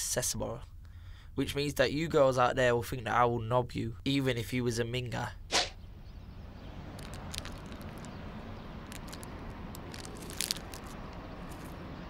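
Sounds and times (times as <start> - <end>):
packet crackling: 6.9 - 8.2, 8.8 - 11.8
snack crunching: 6.9 - 8.2, 8.8 - 11.8.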